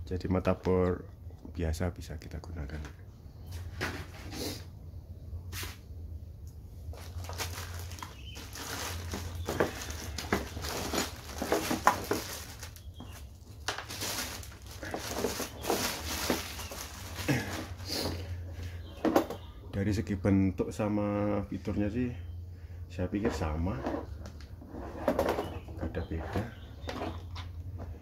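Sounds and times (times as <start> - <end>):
plastic bag crinkling: 6.9 - 18.2.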